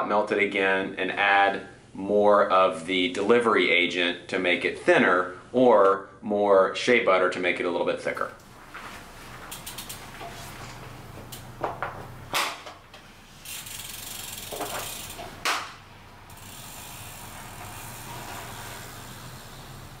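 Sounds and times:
bicycle freewheel ticking: 0:09.4 - 0:10.4, 0:12.9 - 0:20.0
cleats snapping into pedals: 0:09.4 - 0:16.5
steady hiss: 0:13.0 - 0:20.0.

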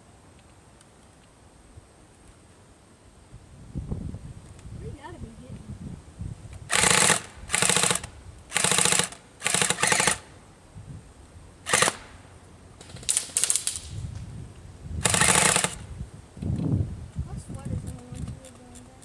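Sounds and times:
airsoft guns firing full-auto: 0:06.7 - 0:10.3, 0:11.6 - 0:12.2, 0:12.8 - 0:13.9, 0:15.0 - 0:15.8.

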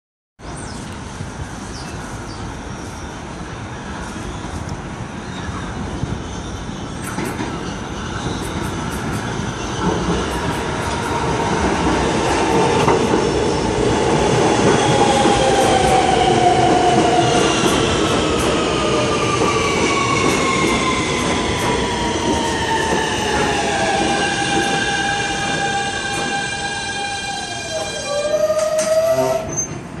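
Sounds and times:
wheels rumbling and clicking on rails: 0:00.7 - 0:30.0.

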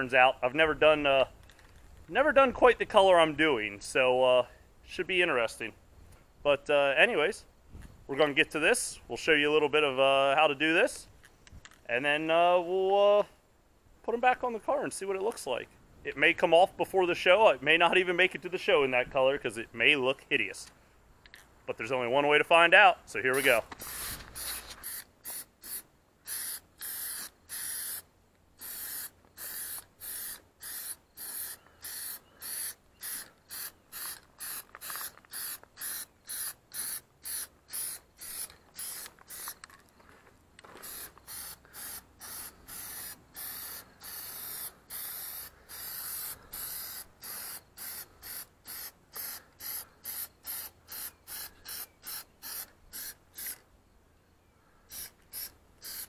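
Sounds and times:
aerosol can spraying: 0:23.4 - 0:28.0, 0:28.6 - 0:39.6, 0:40.8 - 0:53.6, 0:54.9 - 0:56.0.

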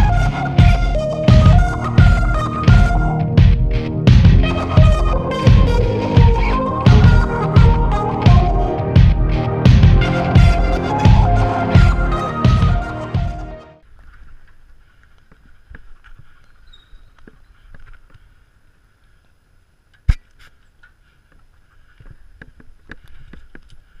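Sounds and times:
background music: 0:00.0 - 0:13.8.

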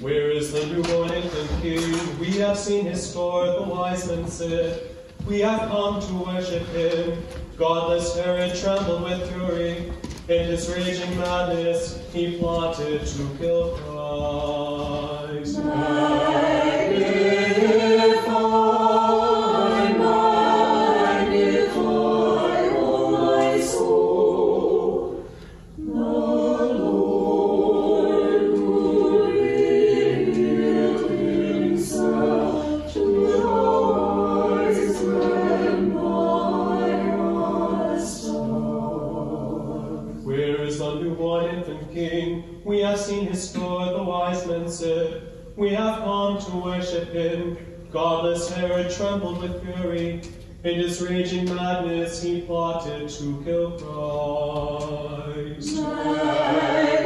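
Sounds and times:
choir singing a cappella: 0:14.0 - 0:42.6, 0:51.0 - 0:57.0.

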